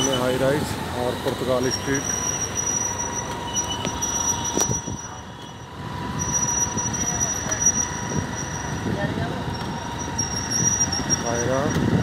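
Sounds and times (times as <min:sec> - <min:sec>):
traffic: 0:00.0 - 0:12.0.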